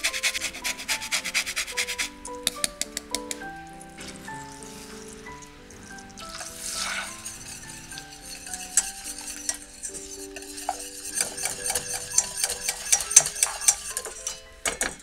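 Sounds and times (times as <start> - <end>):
whisk scraping metal saucepan: 0.0 - 2.2, 4.0 - 15.0.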